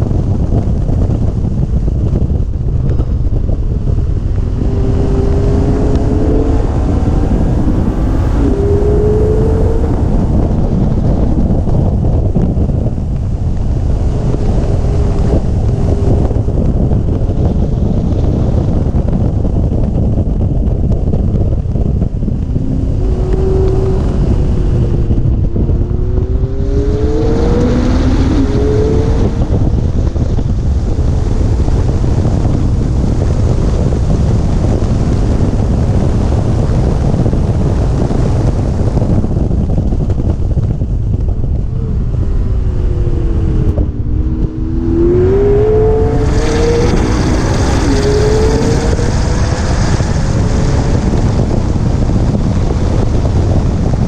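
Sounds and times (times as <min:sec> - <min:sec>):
wind buffeting microphone: 0:00.0 - 0:54.0
car engine revving: 0:02.1 - 0:19.3, 0:20.2 - 0:35.8, 0:38.0 - 0:54.0.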